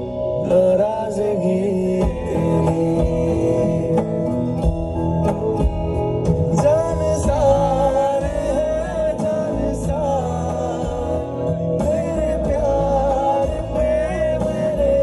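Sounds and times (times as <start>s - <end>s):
song with wavering sung melody: 0.0s - 15.0s
steady bass line: 0.0s - 15.0s.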